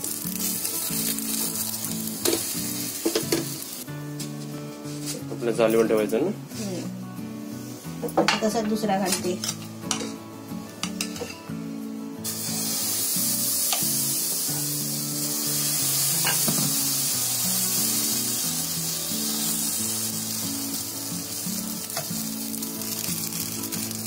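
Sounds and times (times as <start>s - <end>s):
batter sizzling on a pan: 0.0s - 3.8s, 12.2s - 24.0s
background music: 0.0s - 24.0s.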